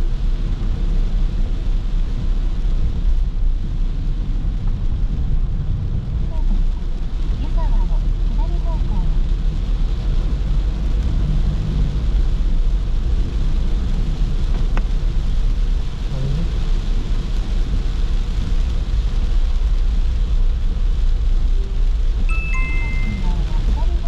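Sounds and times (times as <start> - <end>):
car engine drone: 0.0 - 24.0
road and tyre noise: 0.0 - 24.0.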